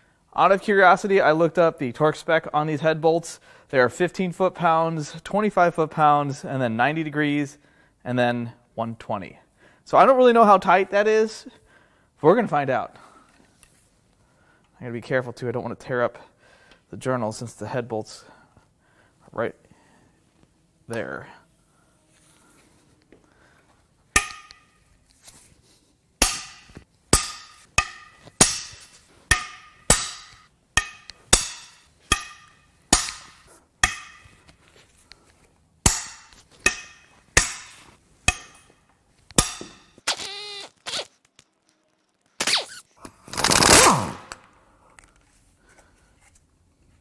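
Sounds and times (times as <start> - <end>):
impact wrench hammering: 24.2 - 24.8, 26.2 - 34.5, 35.8 - 40.0.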